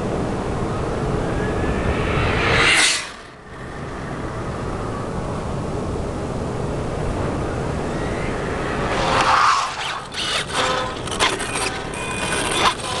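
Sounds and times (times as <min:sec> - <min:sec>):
low rumble: 0:00.0 - 0:11.2
rc car motor whine: 0:07.7 - 0:13.0.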